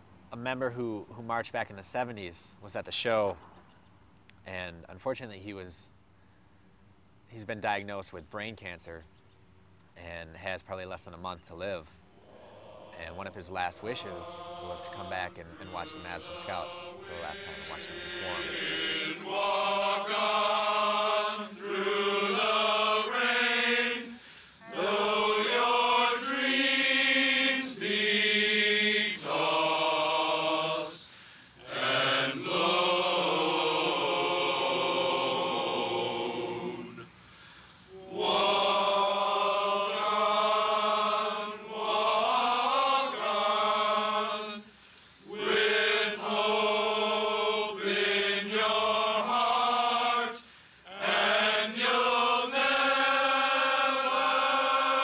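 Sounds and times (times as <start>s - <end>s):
voices singing in chords: 12.0s - 55.0s.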